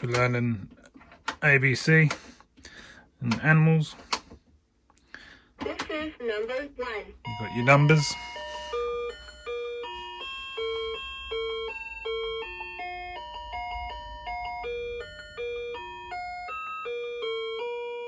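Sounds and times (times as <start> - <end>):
toy beeping electronic tune: 7.2 - 17.8.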